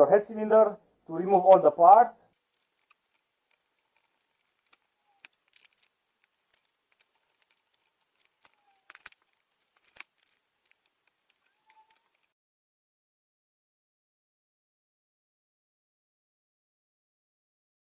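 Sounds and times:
short squeaks: 0:07.1 - 0:10.0, 0:11.3 - 0:12.3.

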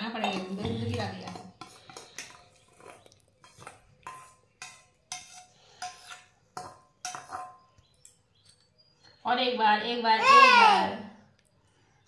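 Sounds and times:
spoon clinking against a dish: 0:00.0 - 0:08.8.

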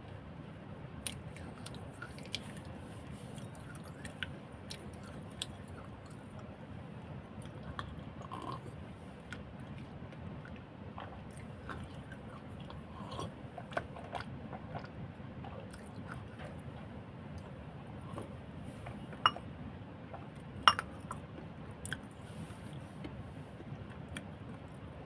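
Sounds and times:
person chewing: 0:01.0 - 0:06.4, 0:07.4 - 0:16.6, 0:20.1 - 0:22.8.

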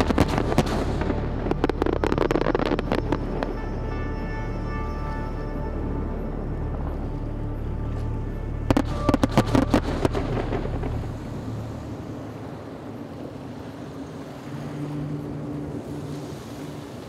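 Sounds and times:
fireworks bangs and crackles: 0:00.0 - 0:03.8, 0:08.6 - 0:12.0
low background music drone: 0:00.0 - 0:17.0.

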